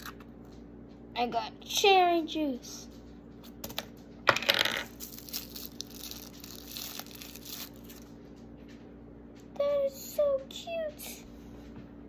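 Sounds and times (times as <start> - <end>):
plastic wrapper crinkling: 4.9 - 8.1.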